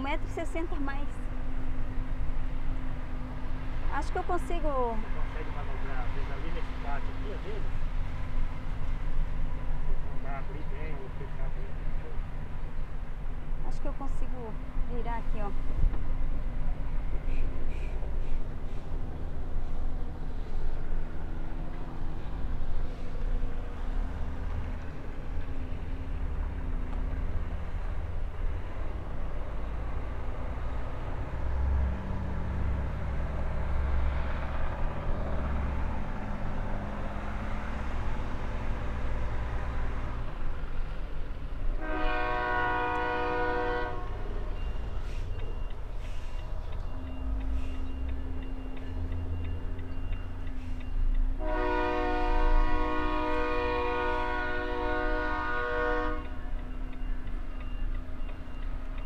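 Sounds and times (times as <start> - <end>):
multi-tone truck horn: 41.8 - 44.6, 51.4 - 56.5.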